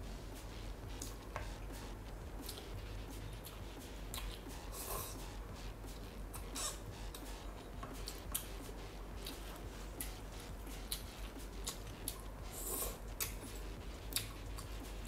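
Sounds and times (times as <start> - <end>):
wet chewing clicks and smacks: 3.4 - 4.5, 10.8 - 12.3, 13.1 - 14.8.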